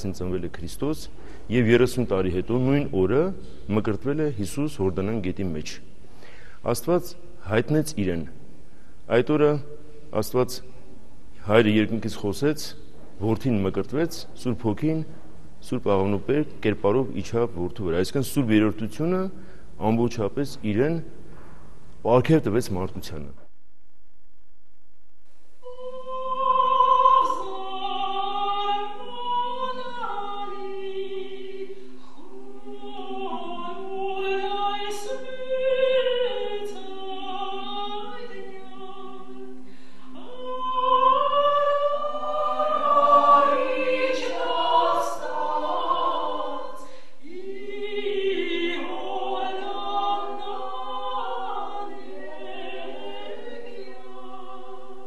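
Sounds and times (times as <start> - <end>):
women's choir chanting: 25.6 - 55.0.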